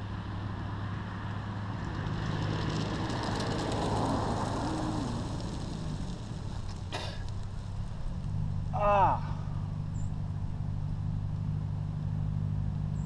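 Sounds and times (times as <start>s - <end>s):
road vehicle passing by: 0.0s - 13.0s
steady low hum: 2.8s - 13.0s.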